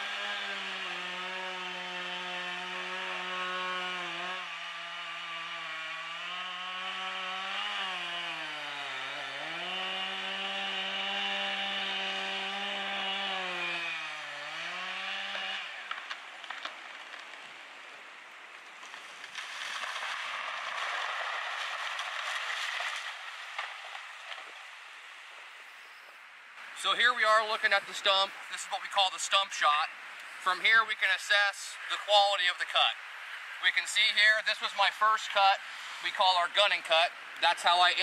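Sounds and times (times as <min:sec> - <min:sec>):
chainsaw running at high revs: 0:00.0 - 0:16.6
wood cracking: 0:14.4 - 0:24.9
tree falling crash: 0:18.7 - 0:24.8.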